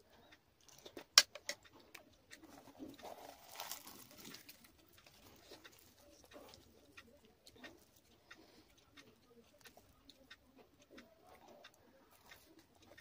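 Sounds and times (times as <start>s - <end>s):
fried bread tearing rustle: 2.5s - 6.2s.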